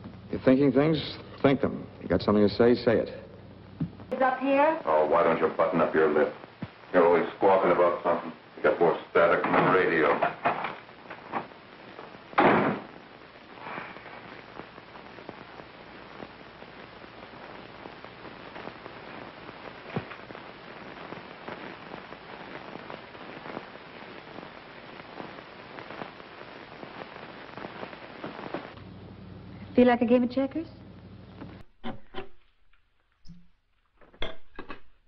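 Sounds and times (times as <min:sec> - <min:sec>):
film soundtrack crackle and hiss: 0:00.0 - 0:34.0
small pops: 0:10.2 - 0:28.9
loud thump: 0:12.4 - 0:12.9.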